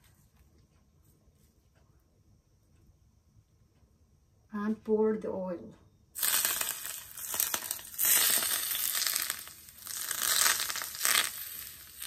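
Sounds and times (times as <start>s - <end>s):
hot oil sizzling and crackling: 6.2s - 12.0s.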